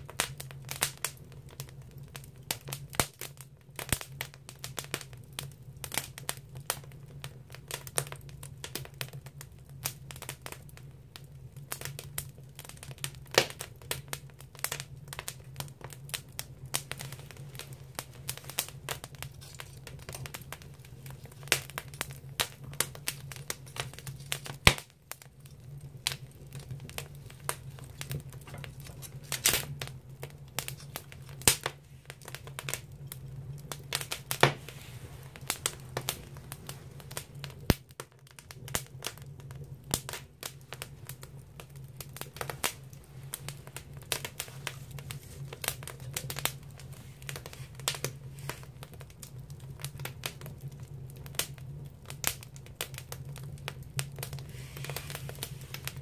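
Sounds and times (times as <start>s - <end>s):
firewood crackling and popping: 0.0s - 56.0s
low steady hum: 14.1s - 37.8s.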